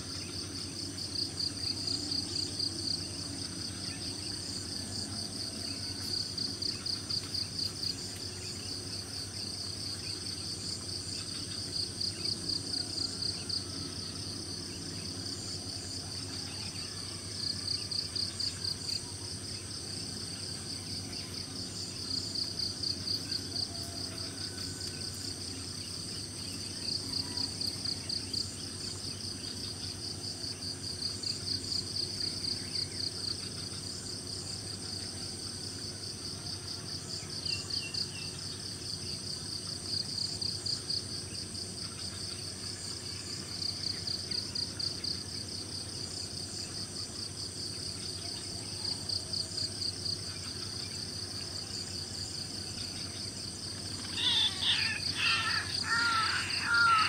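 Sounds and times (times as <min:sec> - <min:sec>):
insects trilling: 0:00.0 - 0:57.0
pulsing insect chirp: 0:00.0 - 0:57.0
faint bird calls: 0:53.9 - 0:57.0.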